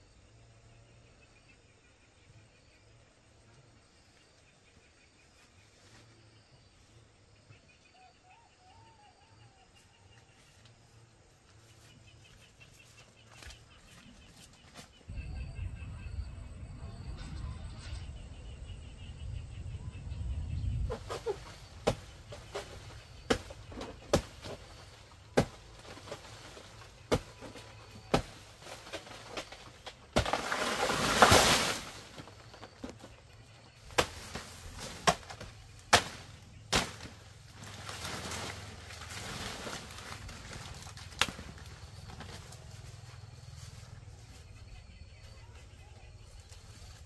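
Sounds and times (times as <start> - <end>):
rustling crash: 28.2 - 32.8.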